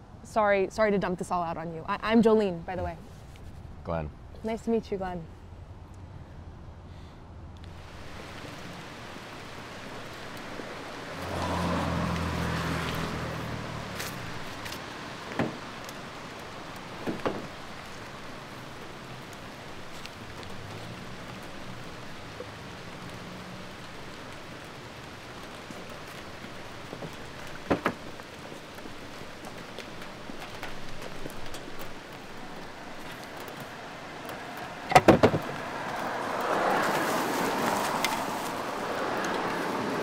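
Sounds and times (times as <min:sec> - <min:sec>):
street ambience: 0:00.0 - 0:40.0
vehicle passing: 0:08.1 - 0:15.8, 0:33.7 - 0:40.0.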